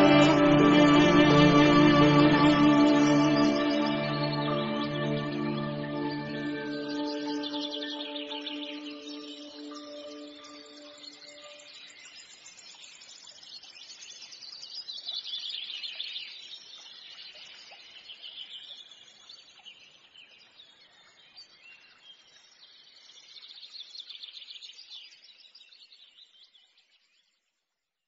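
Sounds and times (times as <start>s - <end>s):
songbirds trilling and chirping: 3.3s - 12.8s.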